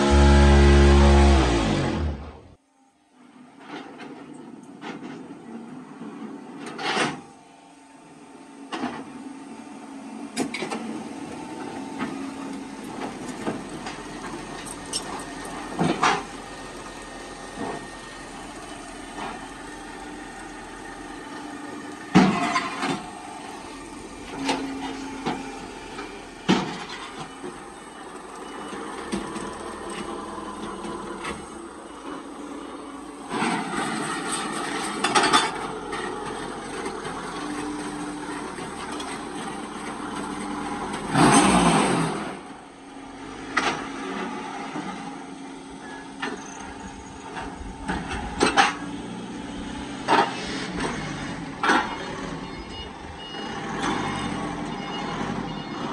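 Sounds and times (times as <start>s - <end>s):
steady mechanical hum: 0.0s - 41.2s, 42.2s - 53.8s.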